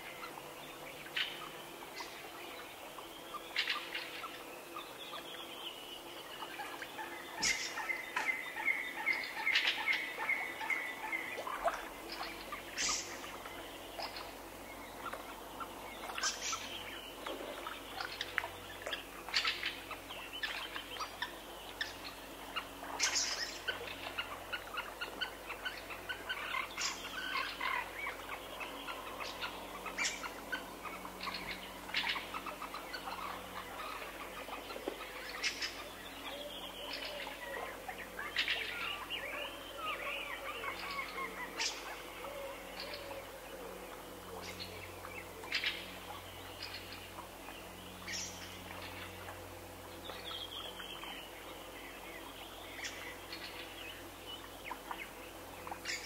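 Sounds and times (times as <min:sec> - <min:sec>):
songbirds singing and calling: 0:00.0 - 0:56.0.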